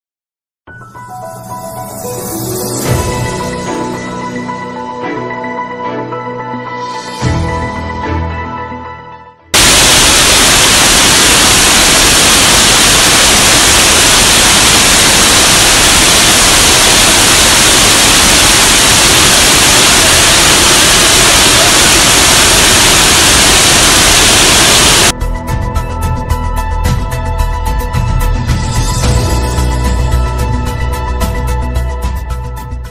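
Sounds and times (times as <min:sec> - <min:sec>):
music: 0:00.7 - 0:09.6, 0:25.1 - 0:32.9
water pouring down: 0:09.6 - 0:25.1.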